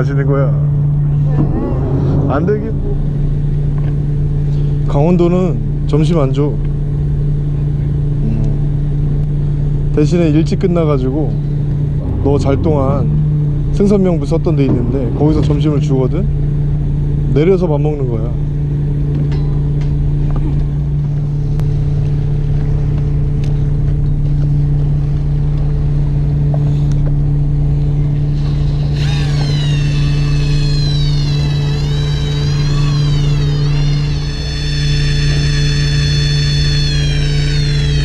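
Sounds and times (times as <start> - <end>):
boat engine droning: 0.0 - 38.0
electric fishing reel whining: 28.2 - 38.0.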